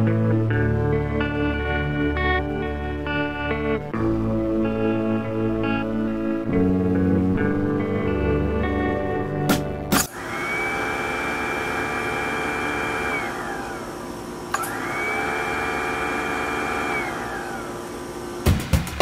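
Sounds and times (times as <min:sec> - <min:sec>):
garbage disposal motor whining: 0:10.0 - 0:18.5.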